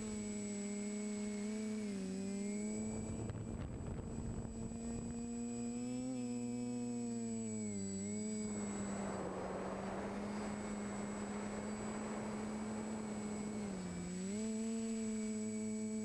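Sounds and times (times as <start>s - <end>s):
drone motors humming: 0.0s - 16.0s
wind hiss over microphone: 2.6s - 5.9s, 8.3s - 16.0s.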